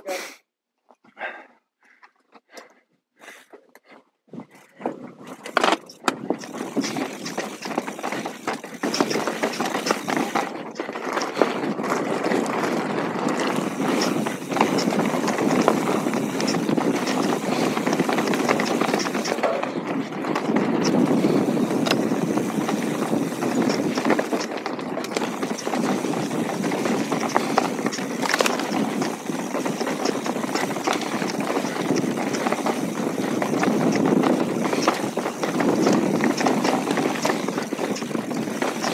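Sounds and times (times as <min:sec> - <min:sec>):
bike clattering: 0:04.6 - 0:38.9
tyres crunching over stones: 0:05.4 - 0:38.9.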